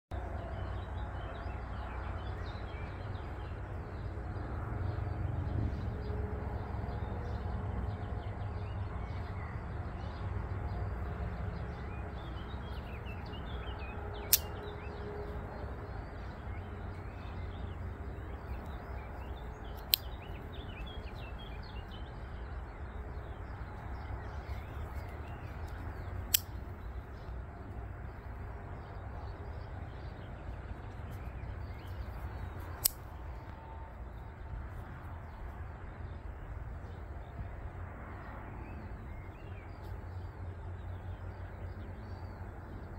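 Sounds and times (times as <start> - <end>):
low wind rumble: 0.1 - 42.9
pocket knife blades snapping shut: 14.2 - 14.6, 19.8 - 20.2, 25.6 - 26.6, 32.8 - 33.1.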